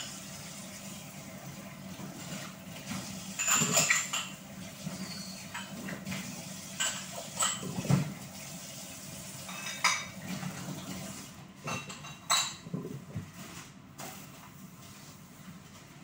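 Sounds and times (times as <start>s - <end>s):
tap water running: 0.0s - 12.7s
dishes clinking in sink: 2.0s - 8.2s, 9.4s - 13.4s.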